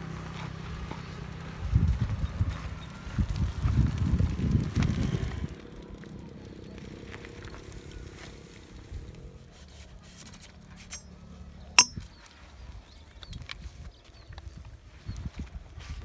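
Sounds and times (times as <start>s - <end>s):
faint ticks and scrapes: 0.1s - 11.4s.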